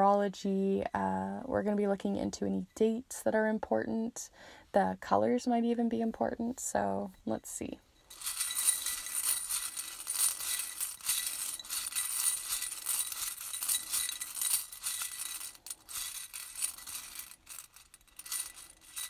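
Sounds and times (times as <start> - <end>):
small hard pieces clinking rattle: 8.1 - 19.0.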